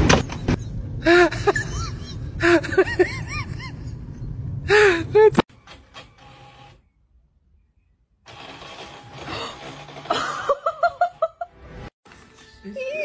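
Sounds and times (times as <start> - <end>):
printer motors whirring: 8.3 - 10.2.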